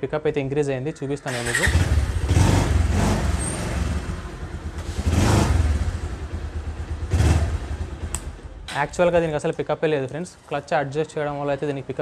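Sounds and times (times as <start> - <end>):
motorcycle engine revving: 1.3 - 8.4.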